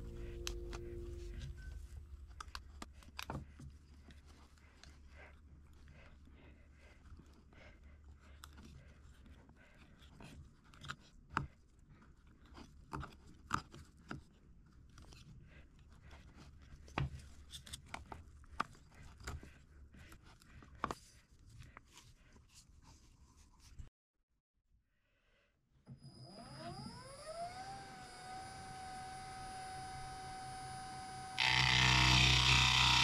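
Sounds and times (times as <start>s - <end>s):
steady low hum: 0.0s - 2.5s.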